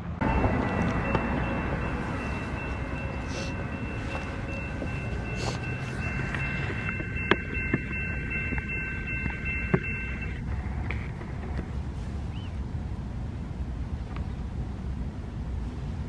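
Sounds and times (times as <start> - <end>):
low rumble of wind: 0.0 - 16.0
railroad crossing bell ringing: 0.2 - 10.7.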